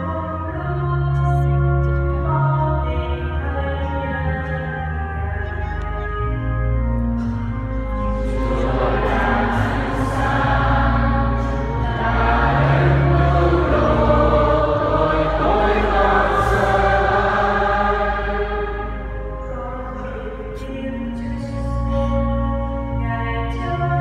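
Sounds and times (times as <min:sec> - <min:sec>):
low held accompaniment chords: 0:00.0 - 0:24.0
voices singing a hymn: 0:07.8 - 0:24.0.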